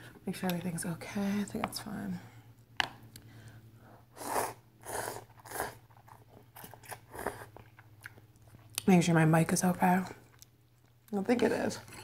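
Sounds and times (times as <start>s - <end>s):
person slurping noodles: 4.2s - 5.8s
wet mouth clicks and chewing: 5.3s - 8.9s.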